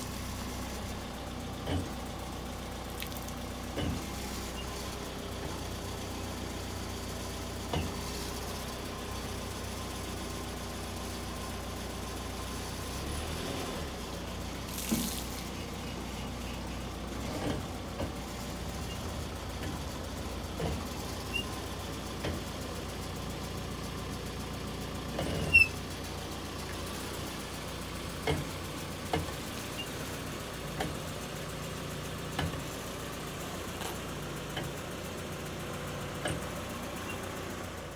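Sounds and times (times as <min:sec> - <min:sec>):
truck engine idling: 0:00.0 - 0:37.9
brake clicks and knocks: 0:01.4 - 0:02.4, 0:03.7 - 0:04.6, 0:07.5 - 0:08.2, 0:14.9 - 0:23.1, 0:25.0 - 0:25.8, 0:28.0 - 0:30.0, 0:30.6 - 0:31.3, 0:32.2 - 0:35.0, 0:36.1 - 0:37.3.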